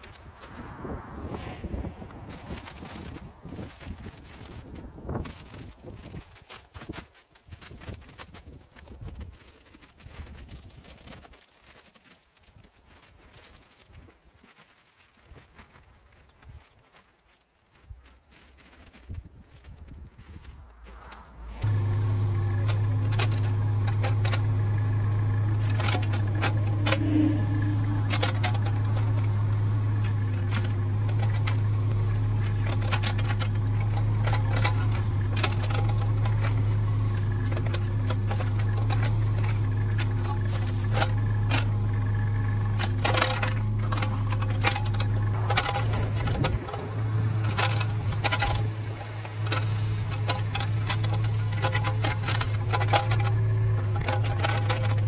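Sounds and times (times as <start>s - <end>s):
bucket knocking and scraping soil: 0.0s - 17.0s, 18.1s - 55.0s
excavator diesel engine running: 20.8s - 55.0s.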